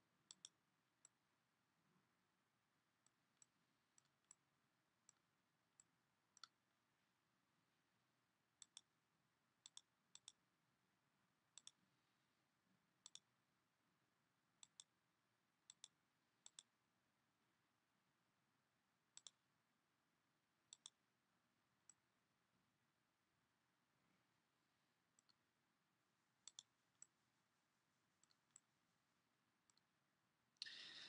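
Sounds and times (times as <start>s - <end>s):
faint computer mouse clicks: 0.3s - 1.2s, 8.6s - 8.9s, 9.6s - 10.4s, 11.6s - 11.8s, 13.0s - 13.3s, 14.6s - 14.9s, 15.7s - 16.7s, 19.2s - 19.4s, 20.7s - 21.0s, 26.4s - 27.1s.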